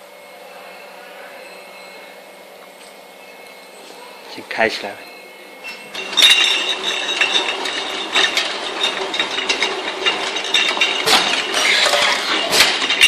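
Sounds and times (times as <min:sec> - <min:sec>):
glass bottles clinking: 0:04.8 - 0:13.0
labeling machine clattering: 0:05.7 - 0:13.0.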